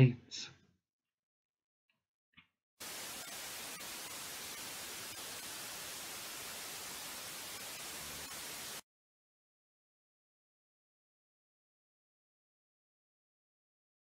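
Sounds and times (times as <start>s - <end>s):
television static hiss: 2.8s - 8.8s.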